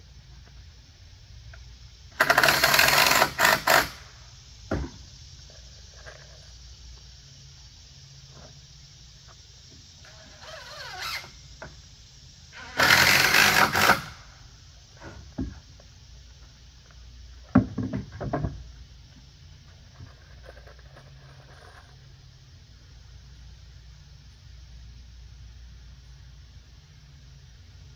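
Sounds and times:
cordless drill driving screws: 2.2 - 4.0, 12.6 - 14.2.

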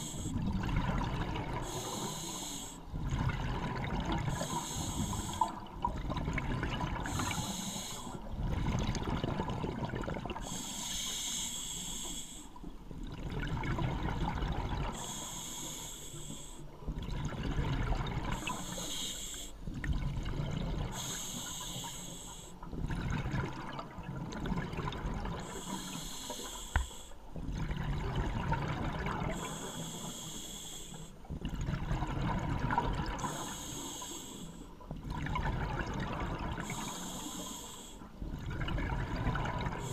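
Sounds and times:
hissing regulator inhale: 0.0 - 0.4, 1.6 - 2.9, 4.3 - 5.6, 7.0 - 8.2, 10.4 - 12.7, 14.9 - 16.7, 18.3 - 19.6, 20.9 - 22.7, 25.4 - 27.2, 29.3 - 31.2, 33.2 - 34.8, 36.6 - 38.2, 39.7 - 39.9.

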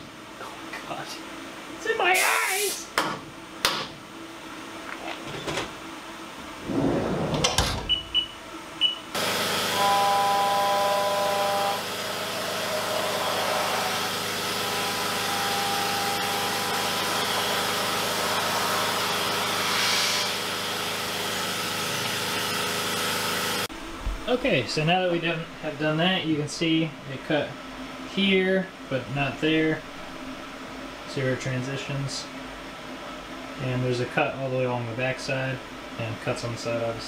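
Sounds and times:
machine clunks: 6.7 - 8.2
cutting whine: 9.2 - 19.8
milling machine running: 9.2 - 23.7.

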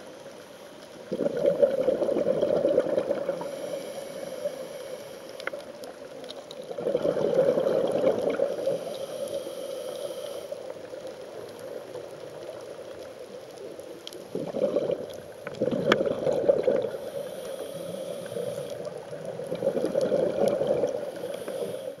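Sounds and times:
gurgling exhaled bubbles: 1.0 - 3.7, 6.6 - 9.0, 14.0 - 17.2, 18.5 - 21.7
regulator inhale hiss: 3.2 - 6.0, 8.4 - 11.4, 16.8 - 19.9, 20.8 - 22.0.

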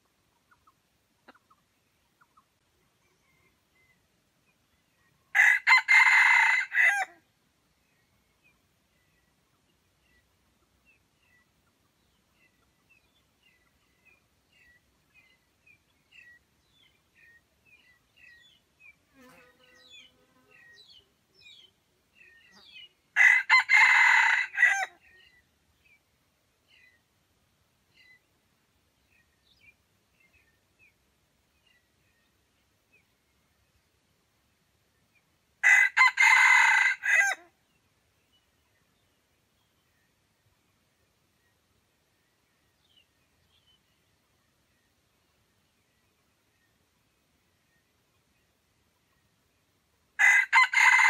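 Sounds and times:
faint small-bird chirps: 0.4 - 5.3, 27.9 - 28.3
rooster crowing: 5.3 - 7.2, 23.2 - 24.9, 35.6 - 37.4, 50.2 - 51.0.

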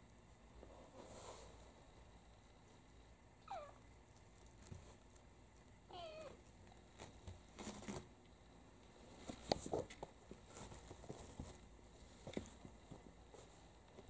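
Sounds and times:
kittens scuffling and tapping: 4.1 - 5.8, 6.4 - 8.1, 8.8 - 14.0.

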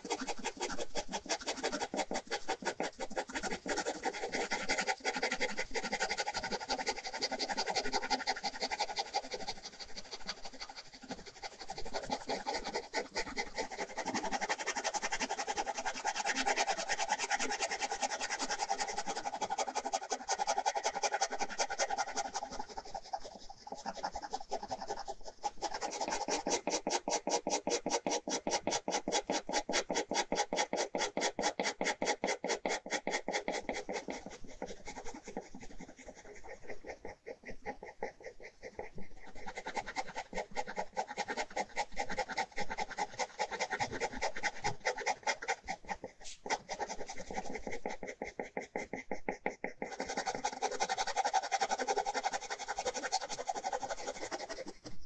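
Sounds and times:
ballpoint pen scratching on paper: 0.0 - 55.0.

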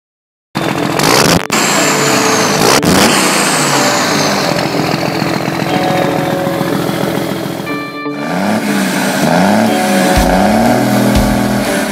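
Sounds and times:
engine running and revving: 0.6 - 11.9
high whine gliding downward: 0.6 - 11.9
sharp hit: 1.4 - 11.9.

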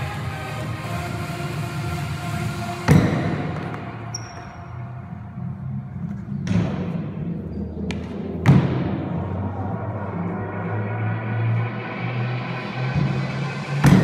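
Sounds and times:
heavy thuds on concrete floor: 2.8 - 3.8.

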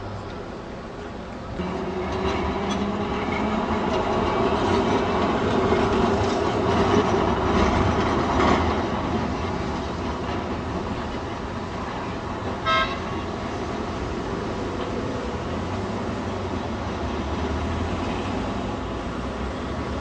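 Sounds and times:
electric tram passing: 0.0 - 20.0
tram wheel clacks: 1.6 - 17.1.

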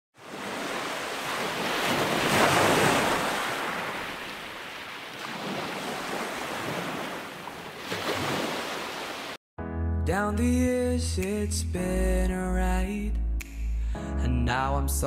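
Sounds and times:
ocean waves on beach: 0.2 - 9.4.

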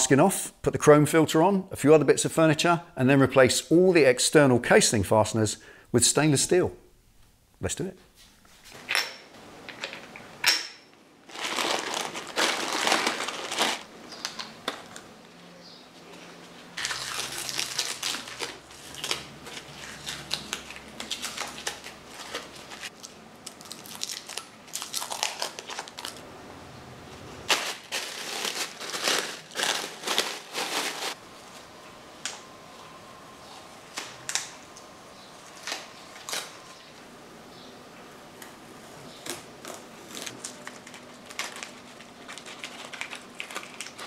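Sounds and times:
masking tape peeling and crinkling: 11.3 - 15.0, 16.8 - 26.2, 27.5 - 31.2, 35.4 - 36.8, 39.2 - 44.0.

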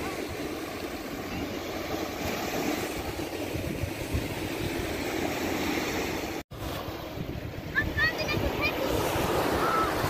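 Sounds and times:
small waves washing onto beach: 0.0 - 10.0
wind buffeting microphone: 2.3 - 10.0.

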